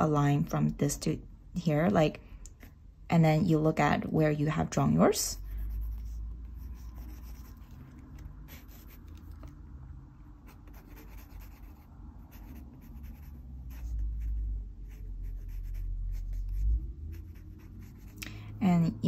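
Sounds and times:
pencil scratching on paper: 0:05.4 - 0:09.5, 0:10.4 - 0:18.2.

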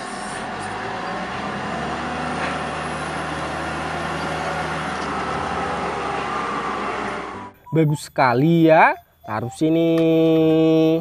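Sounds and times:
diesel engine running: 0:00.0 - 0:07.6.

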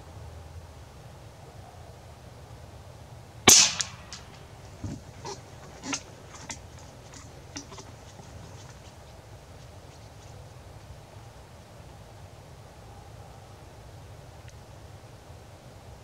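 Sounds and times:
air rifle shot crack: 0:03.5 - 0:06.0.

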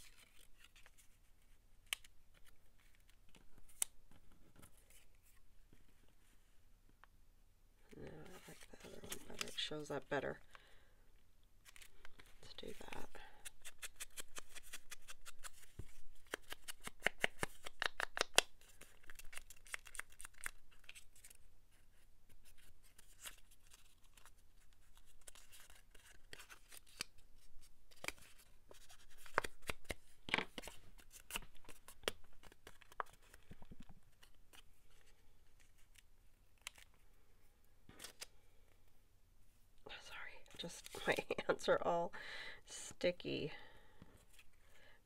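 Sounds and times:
paper rustling: 0:00.0 - 0:06.2, 0:08.2 - 0:09.7, 0:11.6 - 0:17.8.

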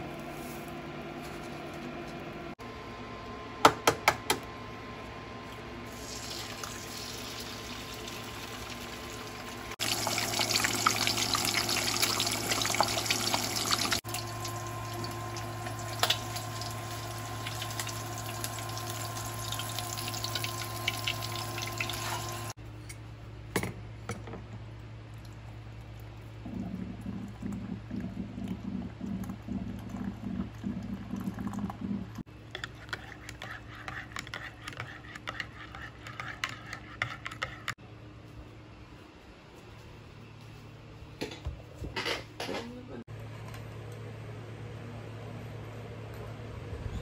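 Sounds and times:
egg sizzling in a pan: 0:05.9 - 0:22.6.

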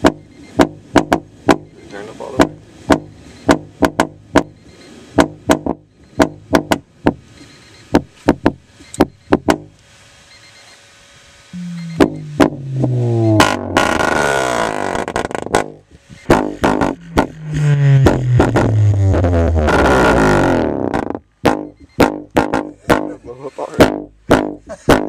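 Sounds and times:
overdriven speaker clicking knocks: 0:00.0 - 0:01.7, 0:02.4 - 0:04.6, 0:05.2 - 0:07.2, 0:07.9 - 0:09.8, 0:11.6 - 0:12.6, 0:15.0 - 0:17.4, 0:18.0 - 0:18.8, 0:20.9 - 0:23.1
faint low hum: 0:11.5 - 0:24.9.

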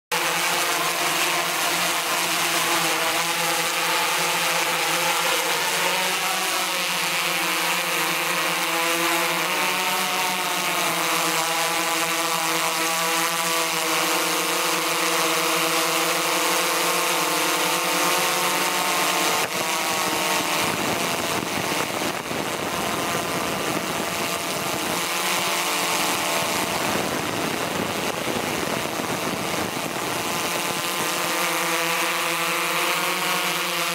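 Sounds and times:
drone propellers buzzing: 0:00.1 - 0:33.9
steady rushing noise: 0:19.2 - 0:31.4.

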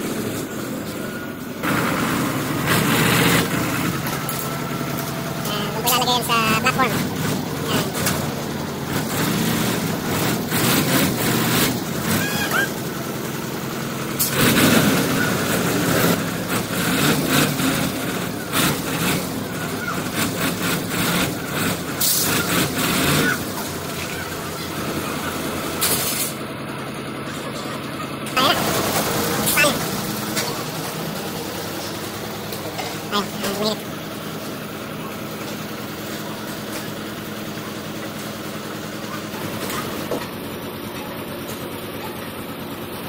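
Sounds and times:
truck diesel engine running: 0:00.0 - 0:43.0.

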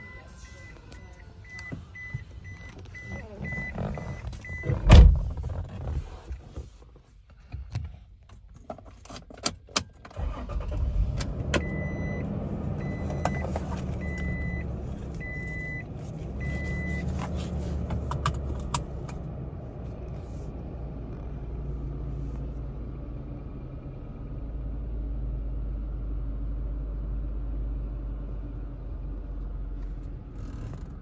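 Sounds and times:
heavy thump: 0:04.7 - 0:05.6
engine starting and idling: 0:10.0 - 0:15.8.

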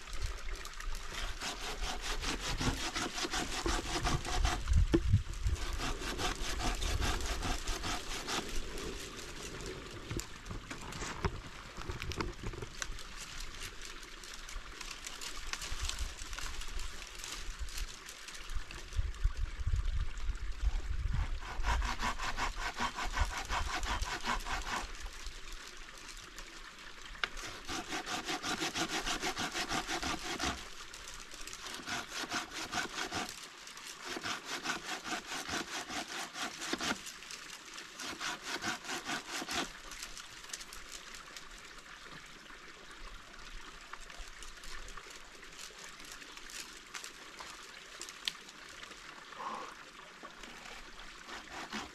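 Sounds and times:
hand saw cutting branch: 0:01.0 - 0:08.9, 0:21.1 - 0:25.1, 0:27.2 - 0:30.9, 0:31.5 - 0:37.3, 0:37.9 - 0:40.7, 0:50.4 - 0:51.9.

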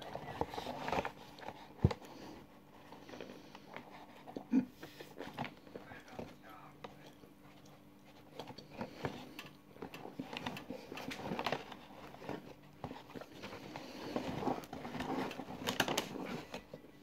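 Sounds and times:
small clicks and crackles: 0:05.1 - 0:16.9.

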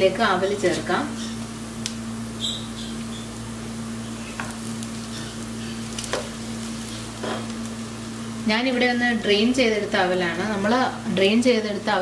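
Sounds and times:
constant low hum: 0:00.0 - 0:12.0
food sizzling in oil: 0:00.0 - 0:12.0.

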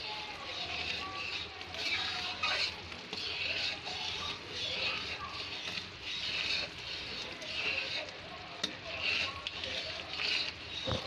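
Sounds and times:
spatula stirring and scraping pan: 0:00.0 - 0:11.0.

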